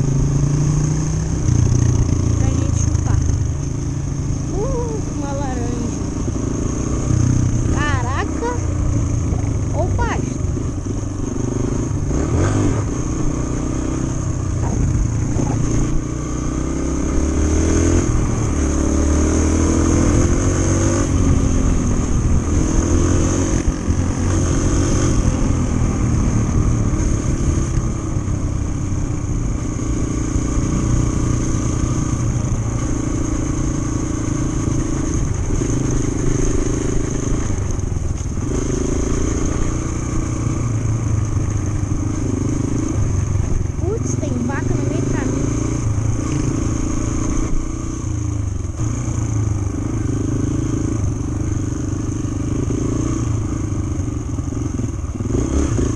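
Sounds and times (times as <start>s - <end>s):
trail bike engine running: 0.0s - 55.9s.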